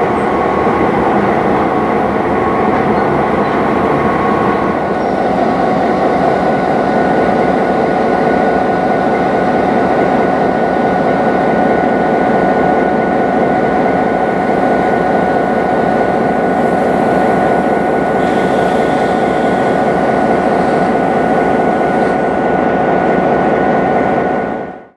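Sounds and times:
steady high whine: 0.0s - 22.9s
diesel locomotive idling: 0.0s - 24.7s.

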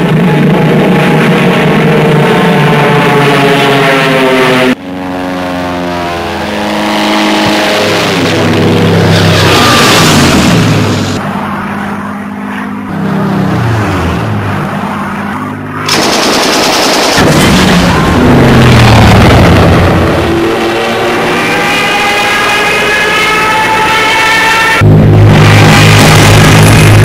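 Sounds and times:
biplane engines droning: 0.0s - 27.0s
machine-gun fire: 15.8s - 18.0s.

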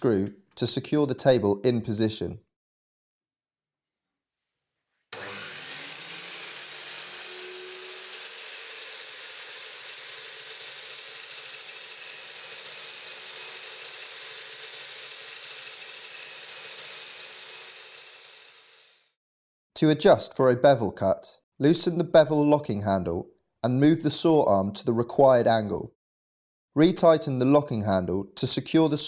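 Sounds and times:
mitre saw cutting timber: 5.1s - 19.2s.

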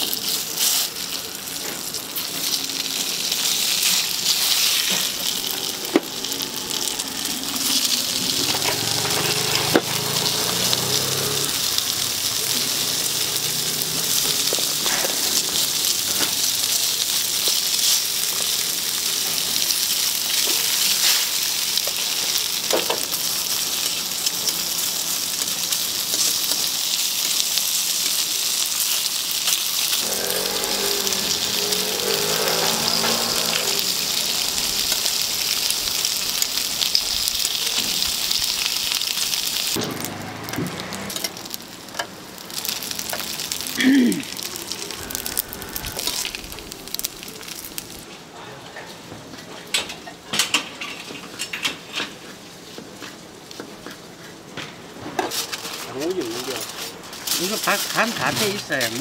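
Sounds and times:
dumplings sizzling in oil: 0.0s - 48.1s, 50.4s - 59.0s.

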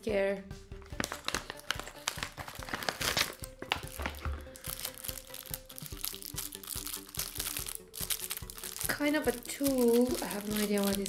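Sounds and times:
packaging crinkling: 0.8s - 11.0s.

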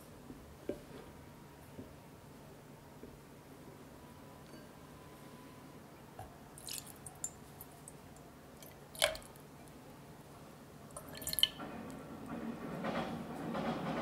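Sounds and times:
liquid pouring into saucepan: 6.6s - 7.3s, 11.0s - 11.6s.

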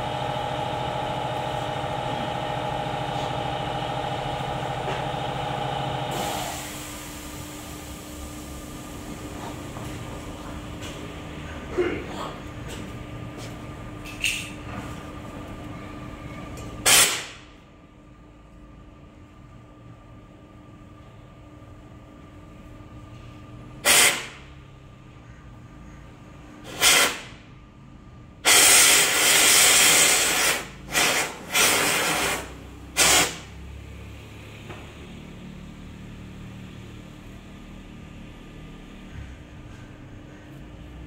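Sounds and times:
compressed air hissing blasts: 16.9s - 17.4s, 23.8s - 24.4s, 26.6s - 27.4s, 28.4s - 33.5s.

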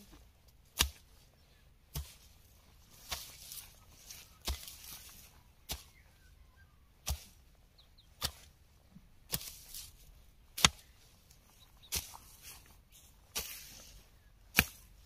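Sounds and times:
rustle of torn grass and soil: 0.3s - 15.0s
tool chopping into turf: 0.7s - 1.1s, 1.9s - 2.3s, 3.0s - 3.6s, 4.4s - 6.0s, 7.0s - 7.4s, 8.2s - 8.5s, 9.3s - 9.9s, 10.6s - 10.9s, 11.9s - 12.4s, 13.3s - 13.8s, 14.5s - 15.0s.

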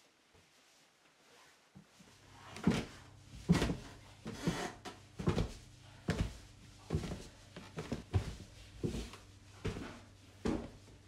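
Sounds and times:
footsteps going down stairs: 1.9s - 11.0s
low steady hum: 1.9s - 11.0s.

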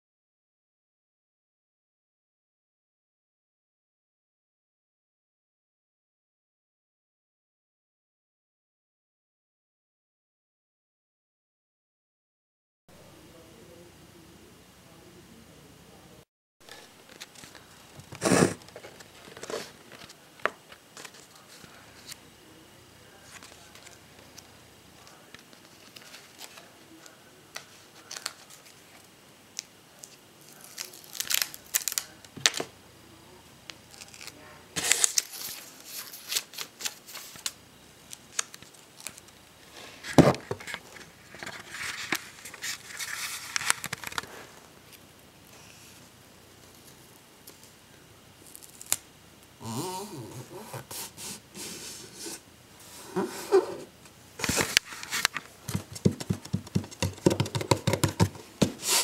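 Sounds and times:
tape and paper tearing and crinkling: 17.1s - 18.7s, 30.4s - 32.2s, 33.9s - 37.6s, 41.4s - 44.4s, 48.4s - 49.0s
clicks and taps: 55.7s - 58.7s.

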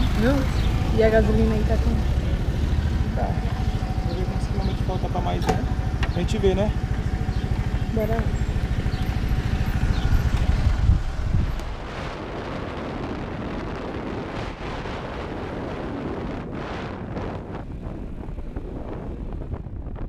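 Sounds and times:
motorcycle engine pulsing: 0.0s - 12.4s
wind rushing over microphone: 0.0s - 20.0s.

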